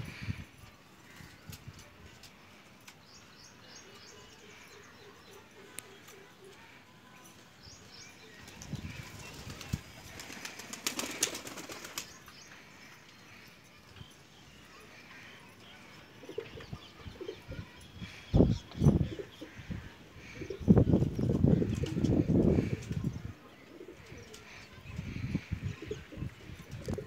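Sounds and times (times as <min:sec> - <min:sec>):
pigeon wings flapping: 0:09.0 - 0:12.1.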